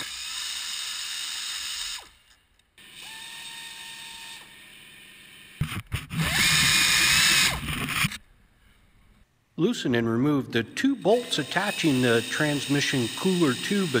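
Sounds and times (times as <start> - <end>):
pneumatic air ratchet spinning: 0.0 - 4.7, 5.6 - 8.2, 11.2 - 14.0.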